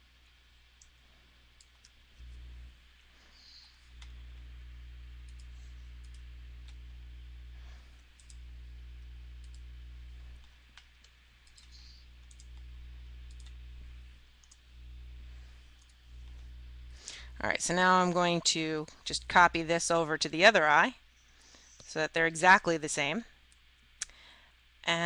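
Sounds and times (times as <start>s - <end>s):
low steady hum: 0.0s - 25.0s
computer mouse clicks: 5.3s - 6.8s, 8.2s - 8.4s, 9.0s - 9.6s, 10.4s - 13.6s, 14.4s - 14.6s, 15.7s - 16.4s.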